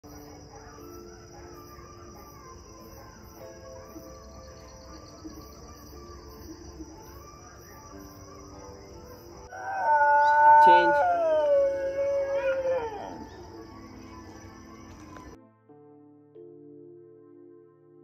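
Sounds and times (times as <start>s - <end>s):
long animal call: 9.5s - 13.6s.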